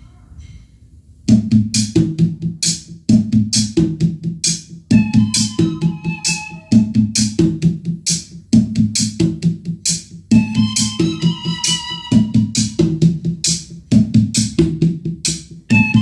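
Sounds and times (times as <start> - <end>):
electronic drum beat: 1.2 - 16.0
held synthesizer notes: 4.9 - 7.0, 15.7 - 16.0.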